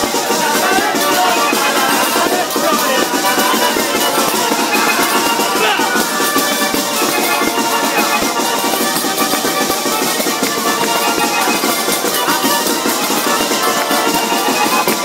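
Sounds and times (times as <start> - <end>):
loud dance music: 0.2 - 8.5, 10.4 - 11.8.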